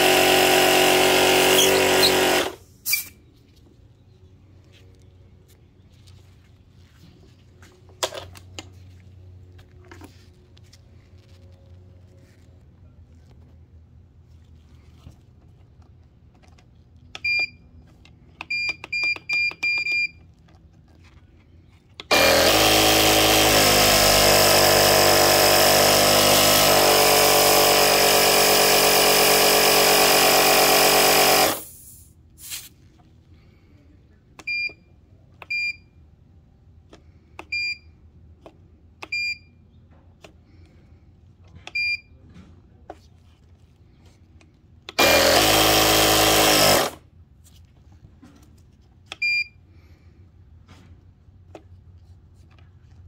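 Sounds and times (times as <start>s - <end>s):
air compressor running: 0.0s - 3.2s, 22.0s - 32.7s, 44.9s - 47.0s
control panel beeps: 34.4s - 34.8s.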